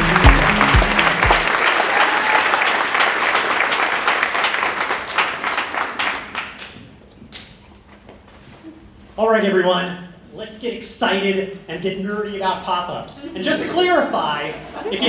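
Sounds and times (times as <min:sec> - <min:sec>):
thumping intro music: 0:00.0 - 0:01.5
audience applauding: 0:00.0 - 0:06.8.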